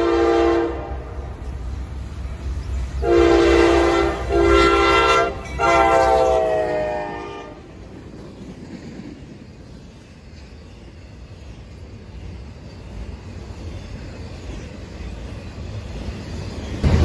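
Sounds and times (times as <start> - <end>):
locomotive air horn blasts: 0.0 - 1.2, 3.0 - 7.6
low rumble of locomotive engines: 0.0 - 17.0
flatcars rolling by: 7.4 - 17.0.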